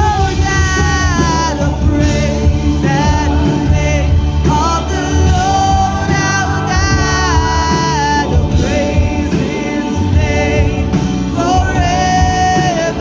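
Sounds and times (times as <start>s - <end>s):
woman singing: 0.0s - 13.0s
worship band playing: 0.0s - 13.0s.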